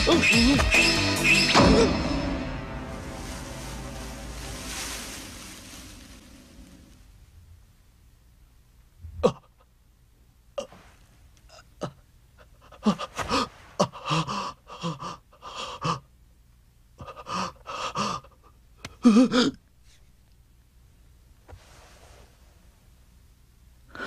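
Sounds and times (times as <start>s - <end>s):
man gasping and grunting: 12.6s - 16.1s.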